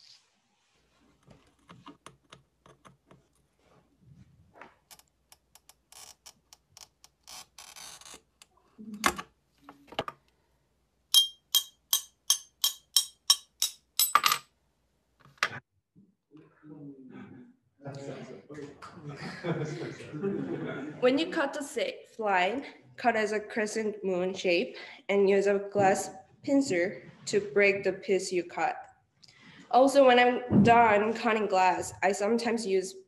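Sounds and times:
ringing taps on glass: 11.1 - 13.5.

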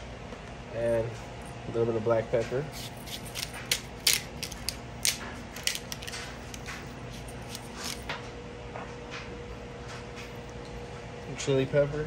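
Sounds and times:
pepper grinder crunching peppercorns: 2.7 - 8.1.

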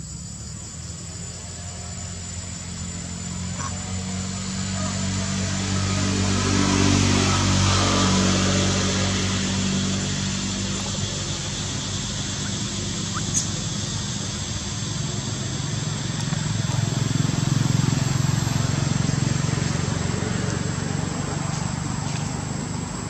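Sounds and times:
vehicle engine running: 1.5 - 23.0.

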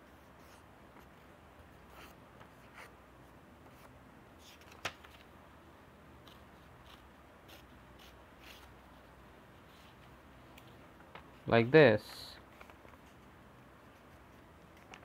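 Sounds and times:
paper rustling: 3.7 - 5.3, 12.4 - 13.3.

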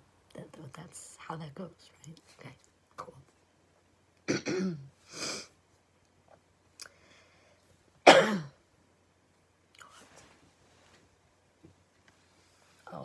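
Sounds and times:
woman coughing: 4.3 - 4.9, 8.1 - 8.6.

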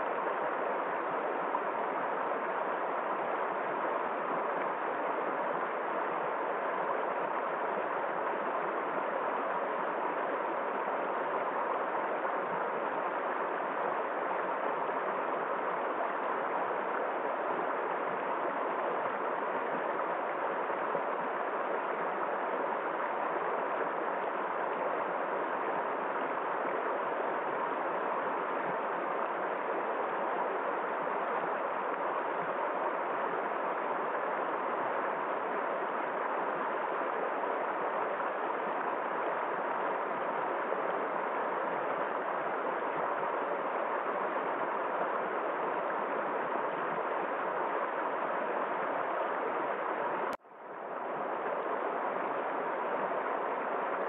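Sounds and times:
stream rushing over stones: 0.0 - 54.0.

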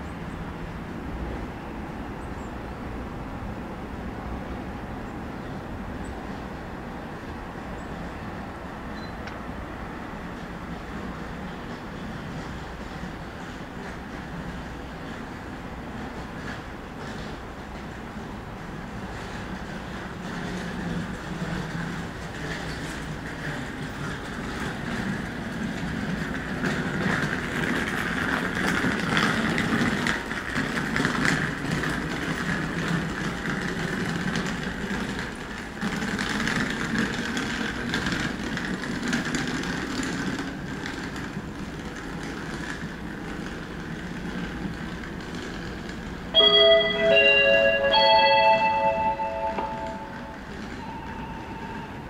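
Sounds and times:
train wheels on rails: 0.0 - 52.0
station chime: 46.4 - 51.5.

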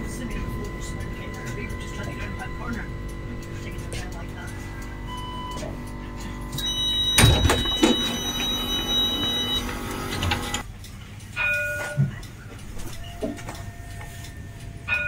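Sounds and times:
high warning tone: 0.0 - 10.6
tram doors sliding: 3.6 - 10.6
short beeps: 6.5 - 9.7.

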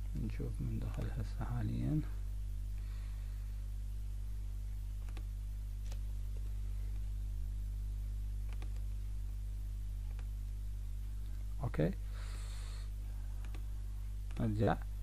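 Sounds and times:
low electrical hum: 0.0 - 15.0
computer mouse clicks: 0.8 - 1.2, 5.0 - 6.5, 8.4 - 9.0, 10.1 - 10.3, 13.4 - 13.6, 14.2 - 14.5.

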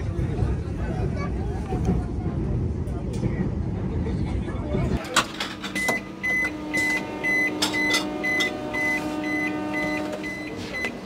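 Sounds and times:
door warning beeps: 5.7 - 11.0
steady hum: 5.8 - 11.0.

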